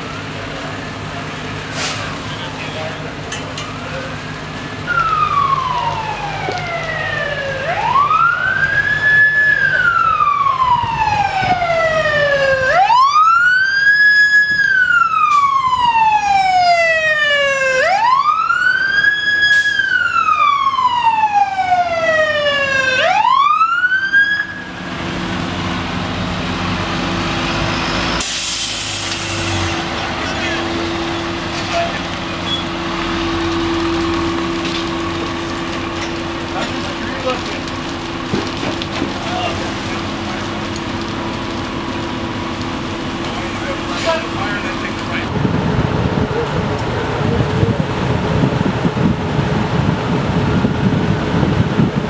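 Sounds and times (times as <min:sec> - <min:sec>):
fire engine siren wailing: 0:00.0 - 0:52.0
truck engine running: 0:24.6 - 0:52.0
short hiss: 0:28.2 - 0:29.6.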